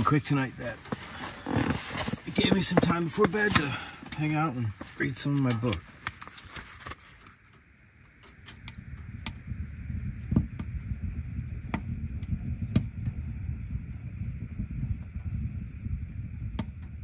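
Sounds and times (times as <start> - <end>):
wood stove burning rumble: 0.0 - 17.0
book pages turning: 4.7 - 7.4.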